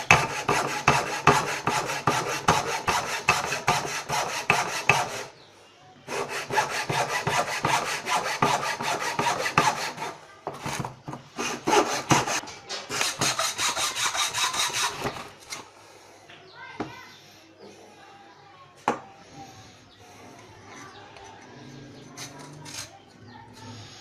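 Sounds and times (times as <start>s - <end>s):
file scraping steel blade: 0.0s - 5.4s, 6.1s - 10.2s, 11.4s - 15.7s.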